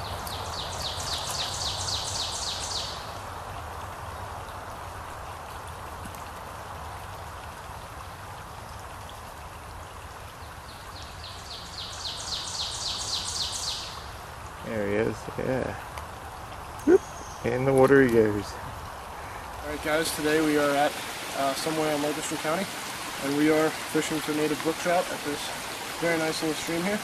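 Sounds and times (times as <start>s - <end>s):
songbird singing: 0.0s - 3.2s, 10.4s - 15.3s, 16.8s - 18.6s
water hissing: 19.2s - 27.0s.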